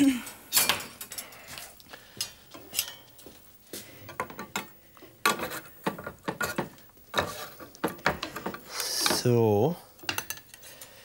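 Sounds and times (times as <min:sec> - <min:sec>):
cutlery clinking and scraping on pan: 0:00.5 - 0:01.3, 0:02.2 - 0:03.2, 0:04.1 - 0:09.4, 0:10.0 - 0:10.9.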